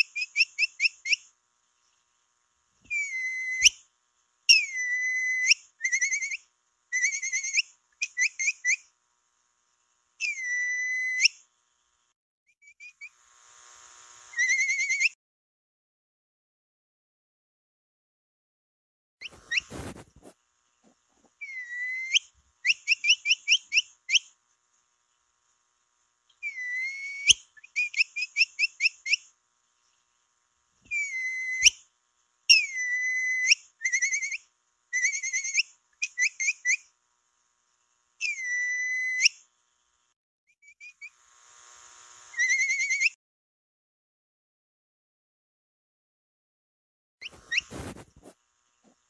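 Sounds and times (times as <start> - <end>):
whistled lure call with chirps: 2.9 - 3.8, 4.5 - 6.4, 7.0 - 8.8, 10.2 - 11.4, 14.4 - 15.2, 21.4 - 24.3, 26.4 - 29.2, 30.9 - 31.8, 32.5 - 34.4, 35.0 - 36.8, 38.2 - 39.4, 42.4 - 43.2.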